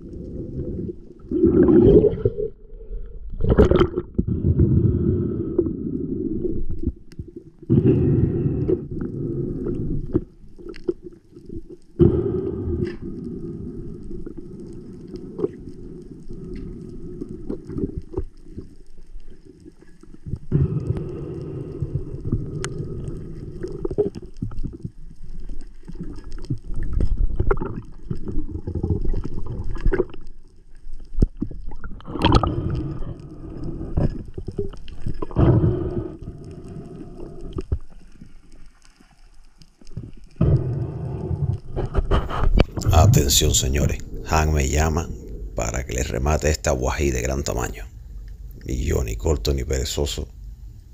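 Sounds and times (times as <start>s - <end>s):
underwater water rushing: 0.0s - 30.4s, 31.2s - 39.2s.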